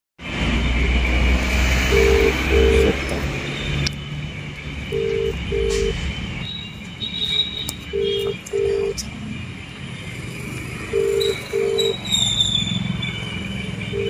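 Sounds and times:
phone ringback tone: 0:01.9 - 0:03.0, 0:04.9 - 0:05.9, 0:08.0 - 0:08.9, 0:10.9 - 0:12.0.

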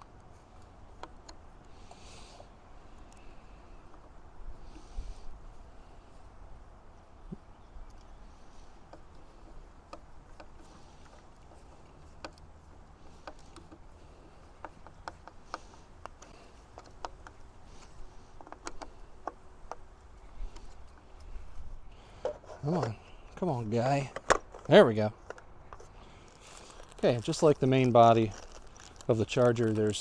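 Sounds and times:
light clicks and taps: 0:06.9 - 0:21.5.

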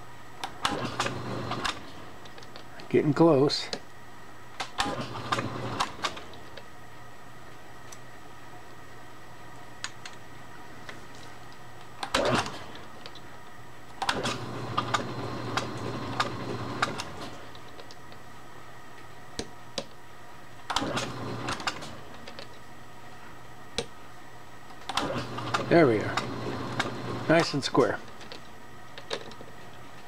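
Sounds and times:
lathe motor humming: 0:25.2 - 0:27.6.

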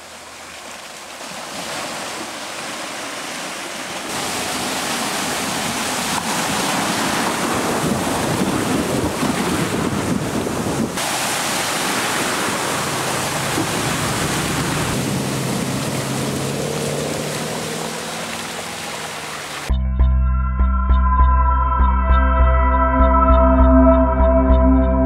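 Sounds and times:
water splashing from wheels: 0:00.0 - 0:19.7
low engine hum: 0:12.0 - 0:25.0.

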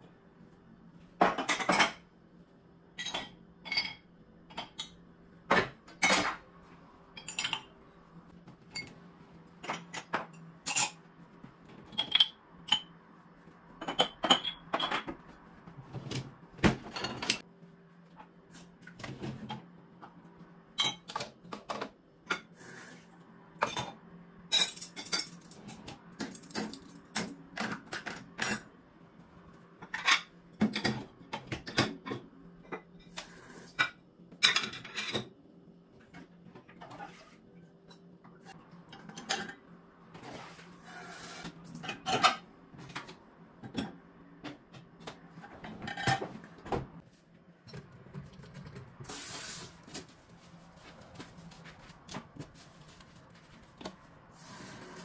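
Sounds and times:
dishes and cutlery clinking: 0:03.0 - 0:06.4, 0:07.2 - 0:07.7, 0:09.6 - 0:11.1, 0:11.8 - 0:13.0, 0:13.8 - 0:15.2, 0:16.6 - 0:17.4, 0:23.6 - 0:28.7, 0:33.8 - 0:35.3, 0:41.7 - 0:44.6.

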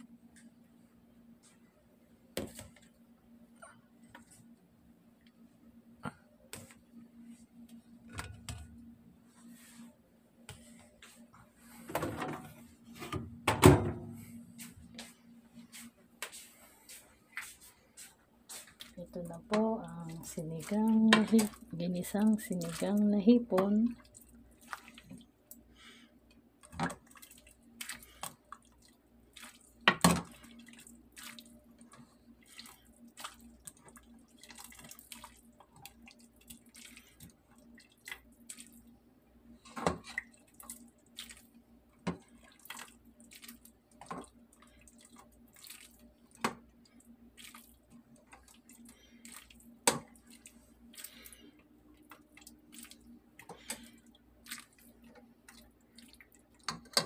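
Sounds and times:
broth dripping and splashing: 0:18.8 - 0:25.9, 0:26.6 - 0:38.9, 0:40.0 - 0:41.6, 0:42.2 - 0:57.0.

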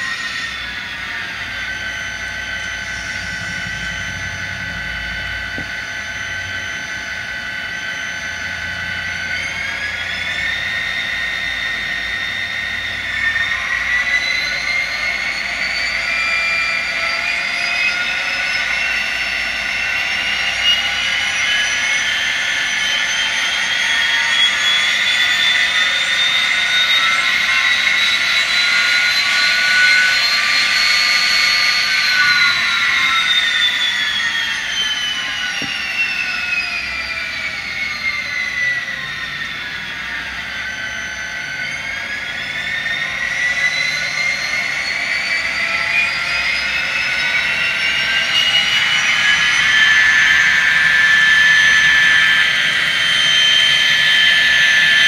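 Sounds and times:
model diesel engine sound: 0:00.0 - 0:15.6
turbo whine: 0:00.0 - 0:55.0.

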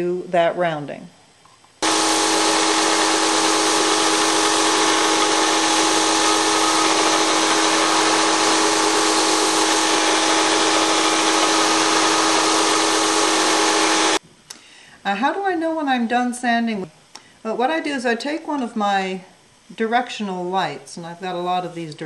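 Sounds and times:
belt sander running: 0:01.8 - 0:14.2.

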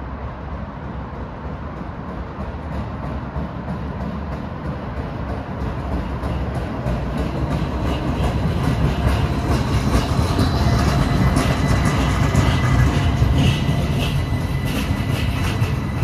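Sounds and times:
streetcar rumbling on rails: 0:00.0 - 0:16.0.

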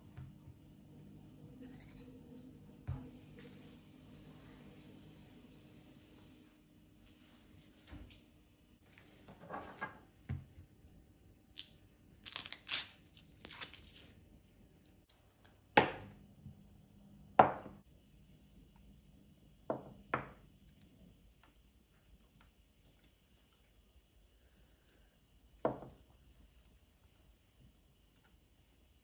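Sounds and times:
rustles and crinkles: 0:12.2 - 0:15.0.

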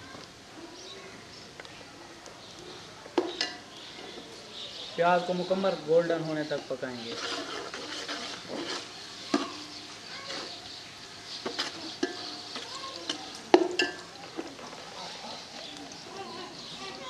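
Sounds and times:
onions sizzling in hot oil: 0:00.0 - 0:17.0
metal ladle scraping a pot: 0:06.9 - 0:14.6.

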